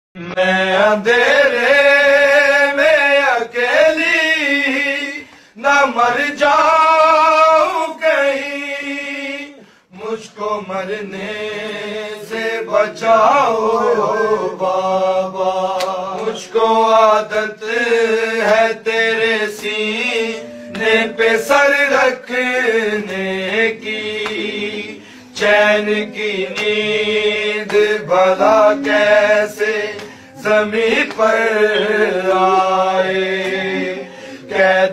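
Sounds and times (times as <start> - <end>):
solo voice chanting: 17.9 - 34.9
hummed drone: 19.9 - 22.0.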